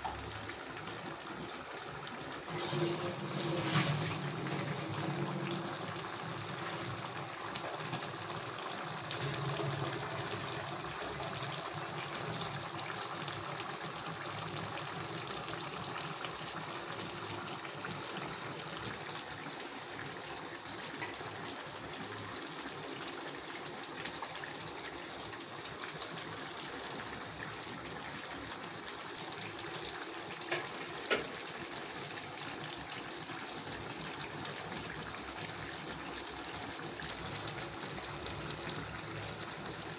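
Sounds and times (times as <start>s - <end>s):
curry bubbling in a pot: 0.0s - 39.9s.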